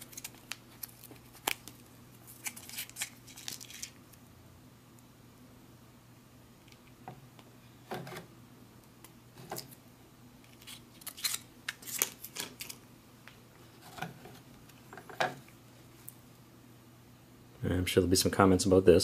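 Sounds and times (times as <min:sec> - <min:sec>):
pouch crinkling: 0:00.0 - 0:04.0.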